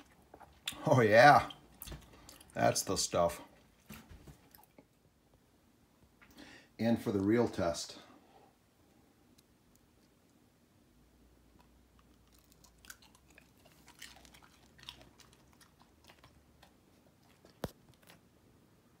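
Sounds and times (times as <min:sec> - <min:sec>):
dog crunching food: 0:11.5 - 0:18.3.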